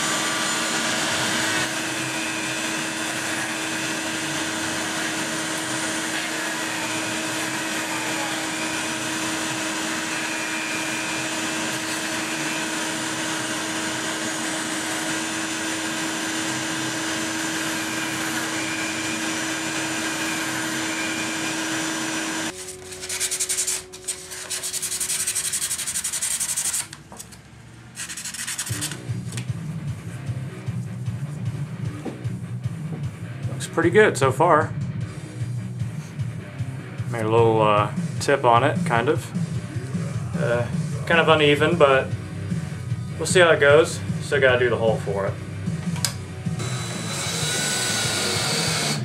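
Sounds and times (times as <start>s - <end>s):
bandsaw humming: 0.0s - 27.0s, 28.0s - 29.3s, 43.2s - 49.0s
shop vac running: 0.0s - 27.2s, 27.8s - 49.0s
sandpaper sanding strokes: 22.5s - 26.9s, 28.0s - 29.0s.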